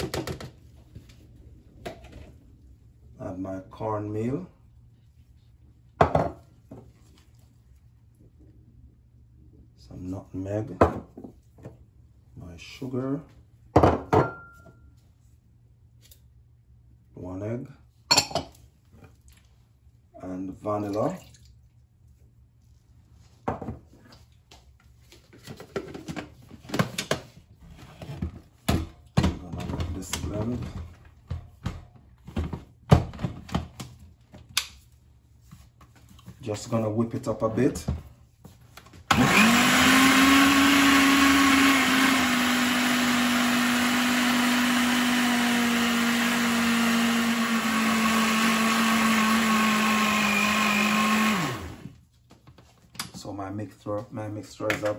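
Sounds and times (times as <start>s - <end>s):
plastic kitchenware knocks and clatters: 0.0s - 0.6s, 25.4s - 27.4s
jug blender running: 39.1s - 52.0s.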